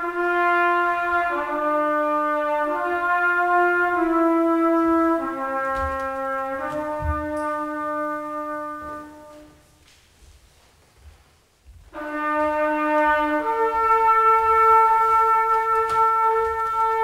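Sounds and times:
trumpet long held notes: 0:00.0 - 0:09.8, 0:11.9 - 0:17.0.

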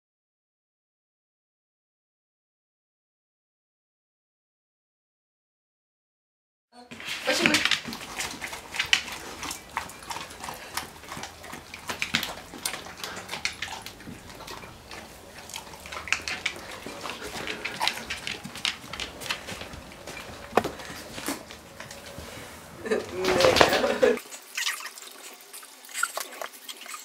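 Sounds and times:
dogs chewing and smacking: 0:06.9 - 0:27.0.

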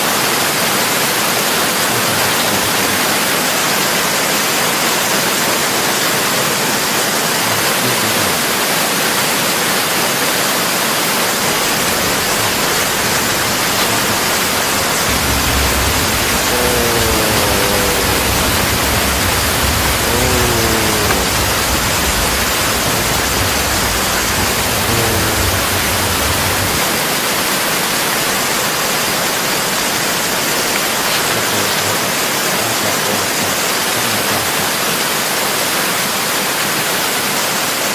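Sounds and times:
strong wind rushing: 0:11.4 - 0:27.0
falling-pitched wind howls: 0:11.4 - 0:27.2.

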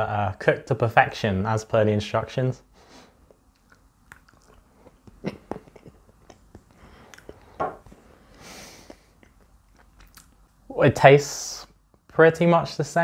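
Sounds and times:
person chewing soft food: 0:03.2 - 0:10.7.

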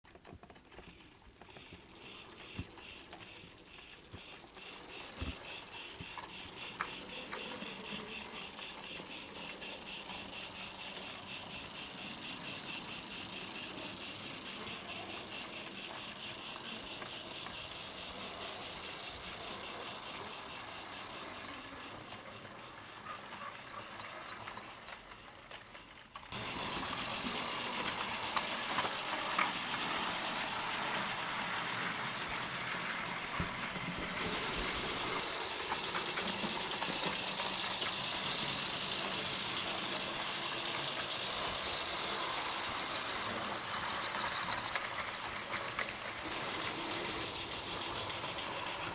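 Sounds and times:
wheels rolling on rails: 0:00.1 - 0:48.9
model train motor running: 0:00.2 - 0:48.9.

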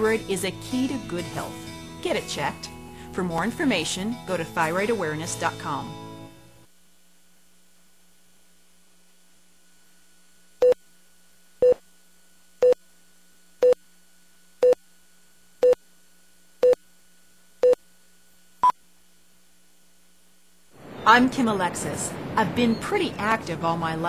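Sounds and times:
faint steady hum: 0:05.6 - 0:24.0.

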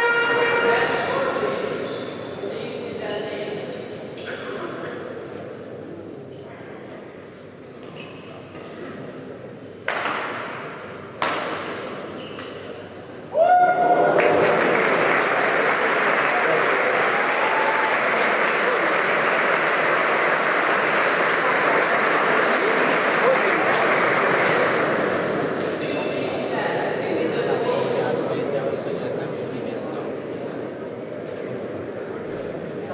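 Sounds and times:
racket striking shuttlecock: 0:09.8 - 0:12.6
crowd applause and cheering: 0:13.4 - 0:25.4.

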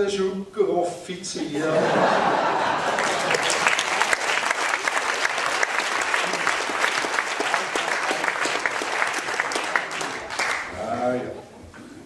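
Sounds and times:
audience applauding: 0:02.2 - 0:11.0.

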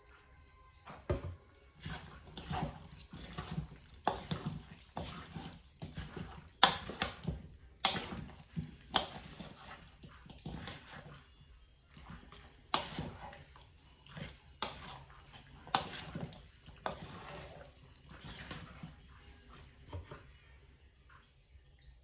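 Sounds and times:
spatula squelching in mixing bowl: 0:01.7 - 0:20.4.

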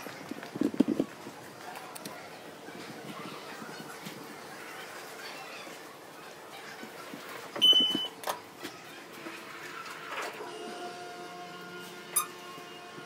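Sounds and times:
elevator mechanical hum: 0:07.5 - 0:13.0
elevator arrival chime: 0:07.6 - 0:08.2.

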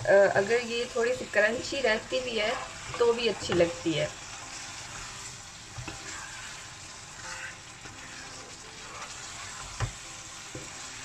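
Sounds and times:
curry sizzling in a pan: 0:00.0 - 0:11.0
wooden spoon knocking pan: 0:02.9 - 0:03.9.

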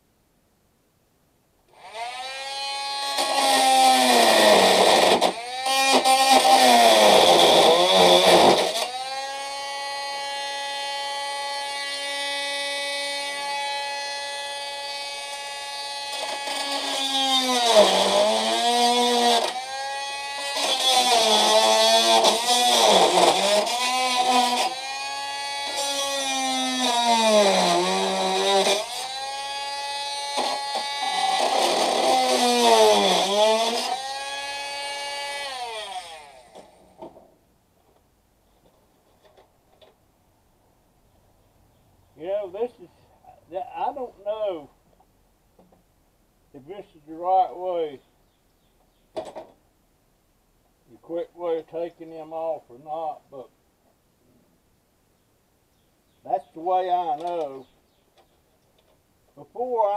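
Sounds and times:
power tool cutting metal pipes: 0:01.7 - 0:37.2
power tool motor running: 0:01.8 - 0:36.8.

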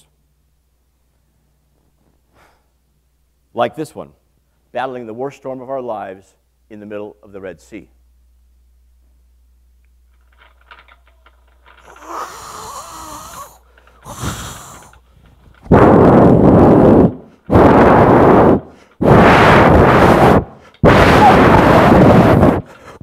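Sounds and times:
breath blown into microphone: 0:02.3 - 0:02.7, 0:11.8 - 0:23.0
man howling like wind: 0:11.9 - 0:15.0, 0:20.0 - 0:23.0.

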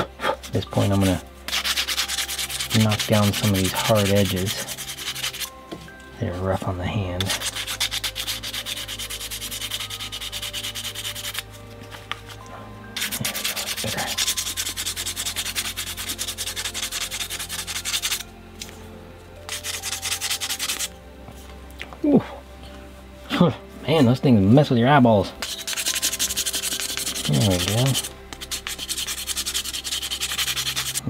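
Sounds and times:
sandpaper rubbing on wood: 0:00.4 - 0:05.5, 0:07.2 - 0:12.4, 0:13.0 - 0:18.2, 0:19.5 - 0:20.9, 0:25.4 - 0:31.0.

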